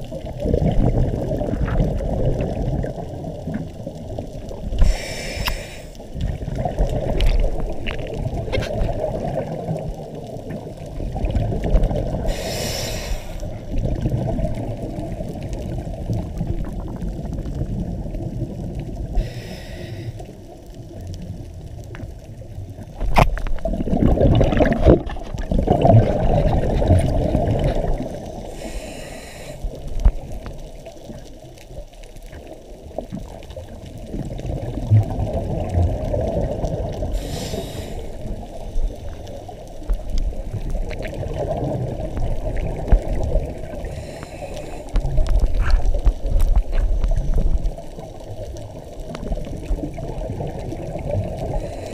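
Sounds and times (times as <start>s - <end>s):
gurgling exhaled bubbles: 0.0s - 51.9s
regulator inhalation hiss: 4.8s - 6.1s, 12.3s - 13.5s, 19.2s - 20.3s, 28.4s - 29.8s, 37.1s - 38.7s, 43.8s - 45.0s, 51.5s - 51.9s.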